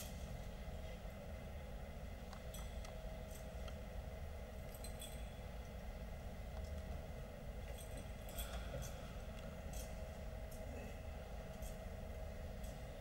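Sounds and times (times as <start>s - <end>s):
low room hum: 0.0s - 13.0s
censer chains clinking: 4.6s - 5.4s, 7.6s - 10.7s.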